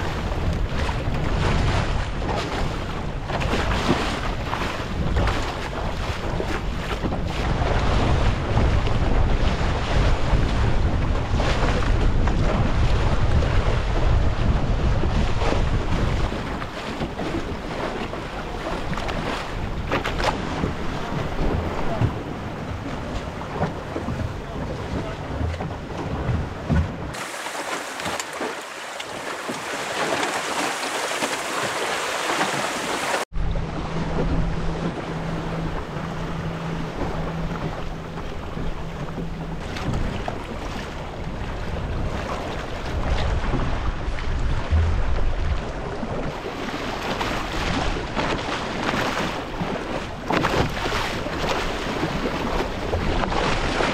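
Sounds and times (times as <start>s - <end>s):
wind buffeting microphone: 0.0s - 28.3s, 29.0s - 53.9s
water rushing past hull: 0.0s - 53.9s.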